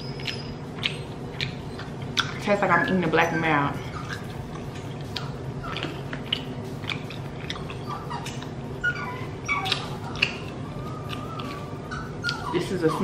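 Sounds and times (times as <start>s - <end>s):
person chewing: 0.0s - 2.4s, 3.9s - 8.6s, 9.5s - 12.5s
low steady hum: 0.0s - 13.0s
squeaky mouth noises: 0.0s - 13.0s.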